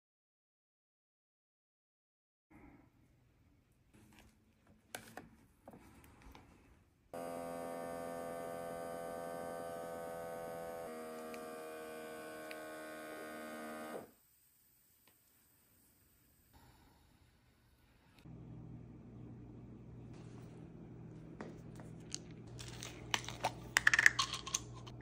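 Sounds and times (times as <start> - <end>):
air pump humming: 7.2 - 14.1.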